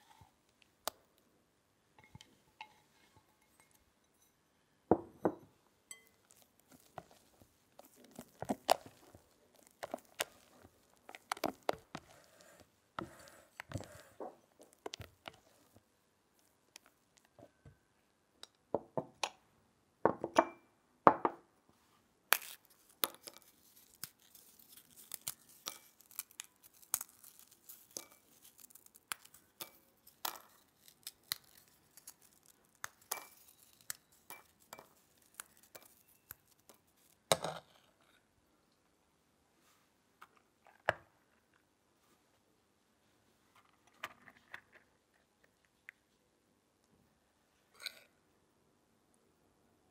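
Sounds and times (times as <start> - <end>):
spoon clinking against glass: 5.2 - 6.3
crumbs clinking on glass: 5.2 - 7.2, 22.3 - 37.5
cookies snapping and crumbling: 6.1 - 12.7, 13.5 - 15.8, 22.3 - 37.5
plastic wrapper crinkling: 6.2 - 12.4, 22.4 - 37.2.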